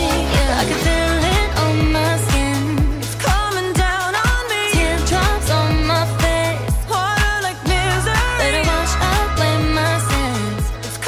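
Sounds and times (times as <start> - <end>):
deep bass drum beat: 0.0 - 10.9
melodic vocals: 0.0 - 11.0.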